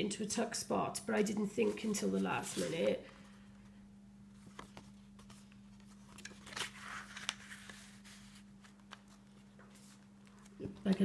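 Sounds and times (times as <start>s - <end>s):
soft paper rustle: 1.1s - 3.7s, 4.4s - 11.0s
paper card handling: 4.4s - 11.0s.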